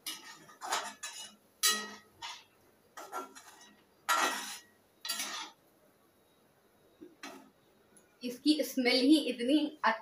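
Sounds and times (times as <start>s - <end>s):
metal ladle scraping a pot: 0.0s - 5.6s.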